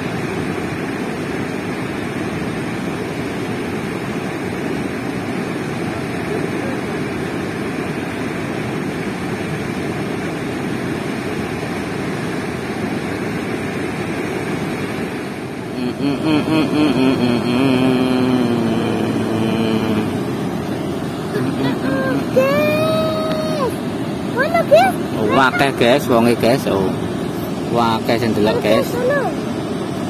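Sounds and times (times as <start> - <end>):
river water rushing over weir: 0.0 - 30.0.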